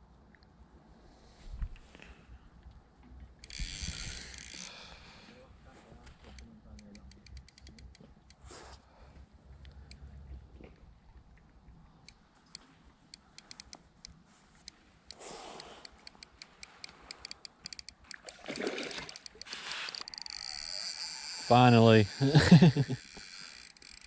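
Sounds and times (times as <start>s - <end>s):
fishing reel clicking: 3.4s - 4.8s, 6.2s - 8.4s, 12.5s - 13.8s, 15.1s - 18.3s, 19.0s - 24.0s
water splash: 18.2s - 19.2s.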